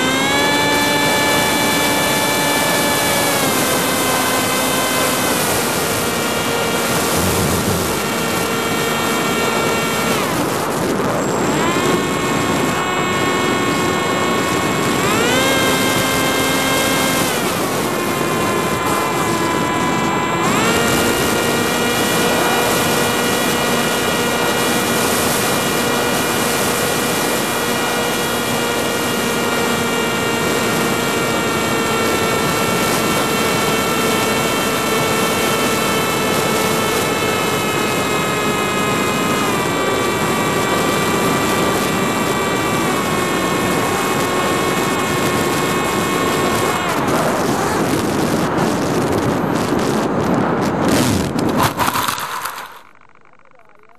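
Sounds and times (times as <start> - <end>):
electric motor and propeller whine: 0.0 - 53.9
wind hiss: 1.1 - 15.1.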